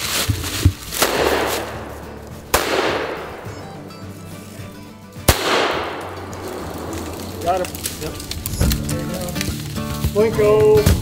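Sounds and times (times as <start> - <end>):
echoing gunshots: 1.0 - 3.6, 5.3 - 8.0.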